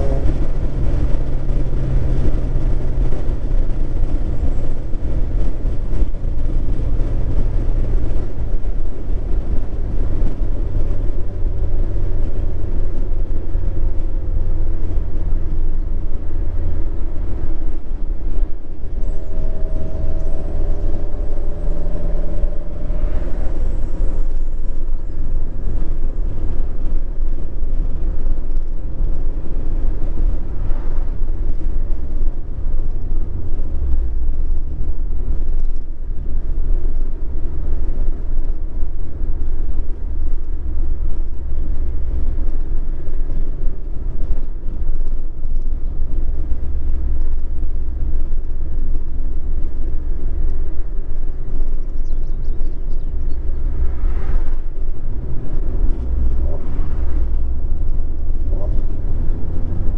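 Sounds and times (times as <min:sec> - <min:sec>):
low exhaust rumble: 0:00.0 - 0:59.9
brief higher tones: 0:18.8 - 0:24.6.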